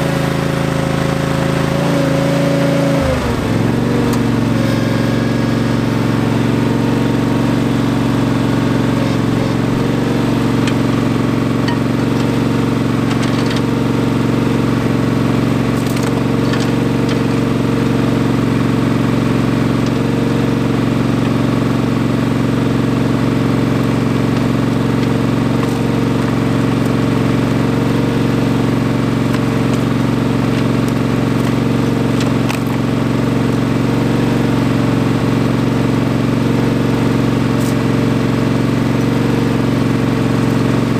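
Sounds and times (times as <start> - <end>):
tractor engine running: 0.0 - 40.9.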